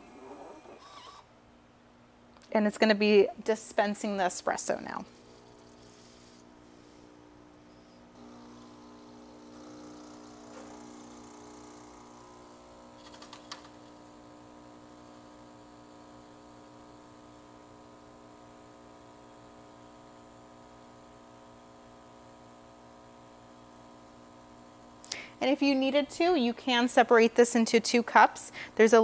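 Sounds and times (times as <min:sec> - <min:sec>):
coffee machine humming: 0:00.0 - 0:01.3, 0:04.9 - 0:25.2.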